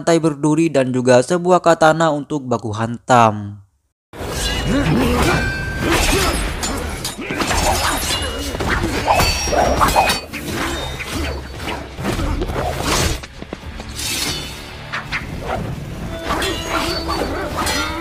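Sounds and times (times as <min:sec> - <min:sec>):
background music: 0:04.2 - 0:18.0.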